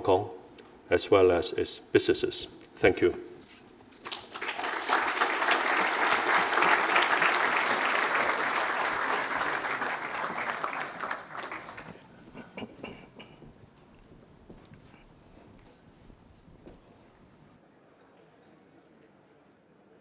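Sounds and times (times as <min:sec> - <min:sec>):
audience applauding: 0:04.0 - 0:13.2.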